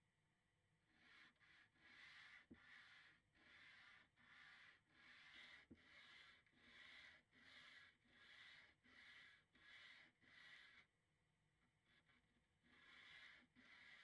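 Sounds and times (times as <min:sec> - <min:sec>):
sandpaper sanding wood: 0:01.0 - 0:10.7.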